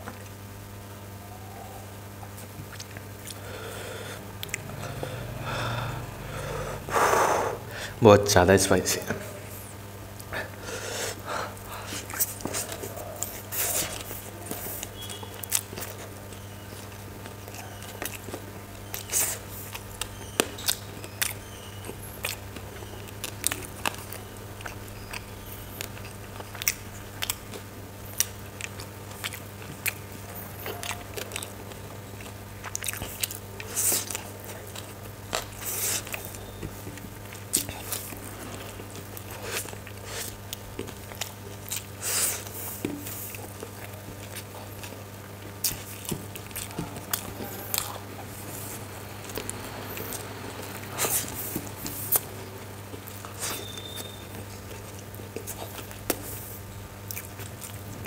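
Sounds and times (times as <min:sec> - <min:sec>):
chewing and mouth smacks: 0:02.3 - 0:03.4, 0:04.4 - 0:05.3, 0:11.6 - 0:58.0
low hum: 0:03.3 - 0:08.0.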